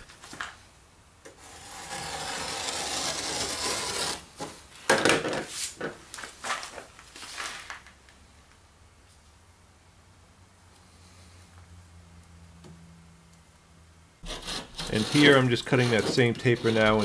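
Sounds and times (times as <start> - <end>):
knife scraping drywall: 1.4 - 4.3, 14.2 - 17.0.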